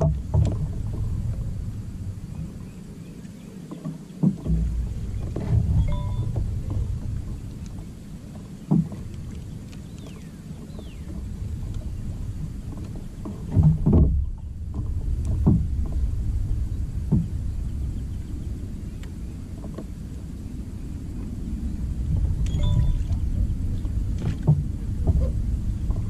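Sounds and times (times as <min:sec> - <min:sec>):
knocks on kayak: 0:00.0 - 0:01.1, 0:13.2 - 0:16.0, 0:24.2 - 0:25.3
low uneven rumble: 0:00.0 - 0:26.0.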